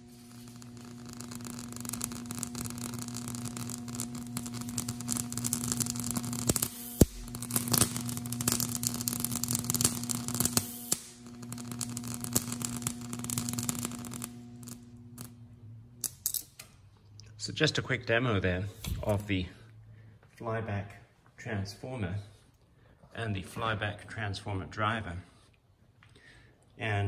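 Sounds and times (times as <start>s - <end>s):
sharp electric snap: 0.0s - 15.4s
electric arc crackling hiss: 0.0s - 15.5s
steady electrical hum: 0.0s - 27.0s.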